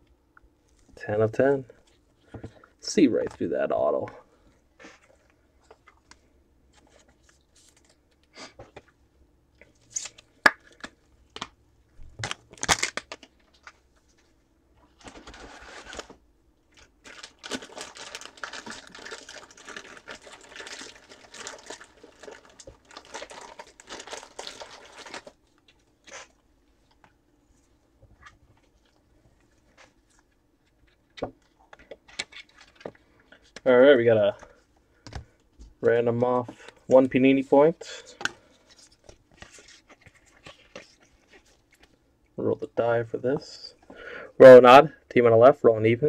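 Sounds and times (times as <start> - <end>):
foil wrapper crinkling: 12.2 - 13.7, 16.8 - 26.3.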